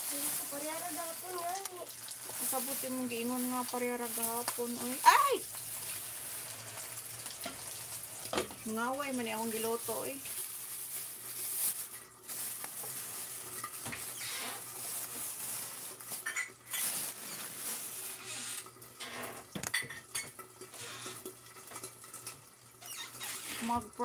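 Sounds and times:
utensils and dishes clattering: 0:12.9 - 0:22.4.

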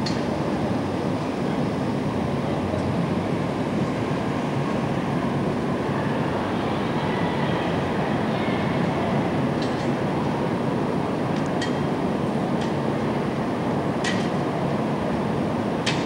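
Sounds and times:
rumble of passing traffic: 0:00.0 - 0:16.0.

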